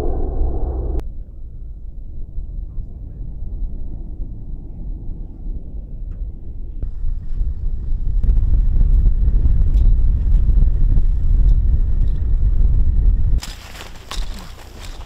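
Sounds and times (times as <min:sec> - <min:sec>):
wind buffeting microphone: 0:00.0 - 0:13.4.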